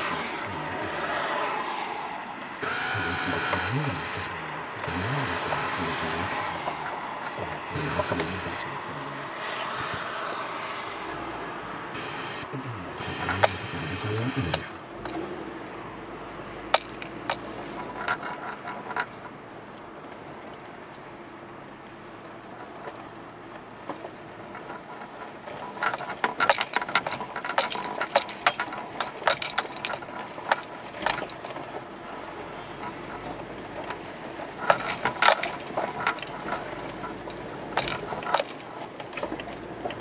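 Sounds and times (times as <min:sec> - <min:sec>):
car driving on stony track: 0:00.0 - 0:40.0
clinks and rattles of stones: 0:13.1 - 0:15.2, 0:16.4 - 0:20.7, 0:22.2 - 0:40.0.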